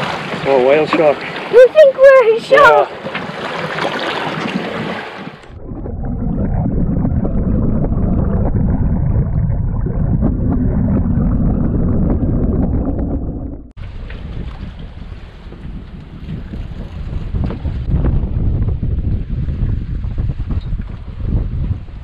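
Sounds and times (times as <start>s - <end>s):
underwater water rushing: 0.0s - 18.1s.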